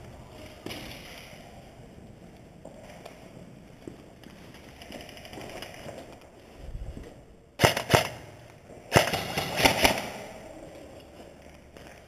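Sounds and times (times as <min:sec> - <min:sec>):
airsoft guns firing: 0:07.6 - 0:10.4.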